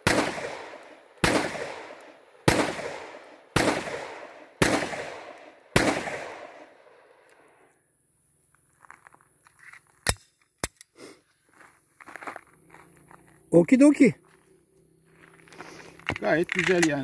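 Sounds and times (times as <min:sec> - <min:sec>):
blank pistol shots with echo: 0:00.0 - 0:07.0.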